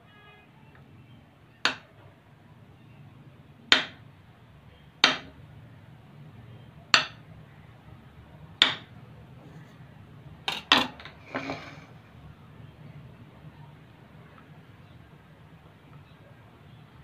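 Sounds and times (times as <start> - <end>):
knife chopping onto stone countertop: 5.0 - 5.3, 7.0 - 7.2, 8.6 - 8.9.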